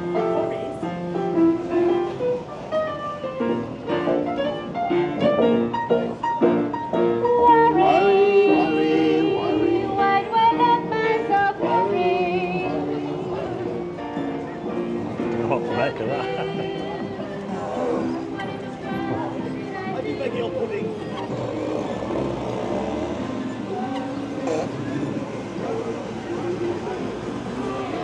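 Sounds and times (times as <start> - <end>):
upright piano tune: 0.0 - 21.2.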